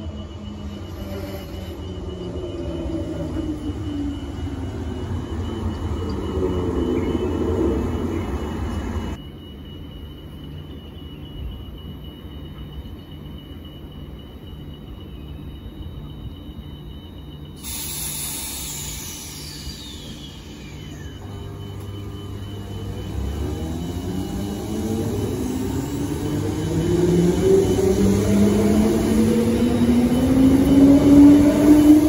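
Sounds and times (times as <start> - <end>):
train hum with high whine: 0.0 - 32.0
train wheels rumbling and squealing: 0.0 - 32.0
hiss: 17.6 - 21.2.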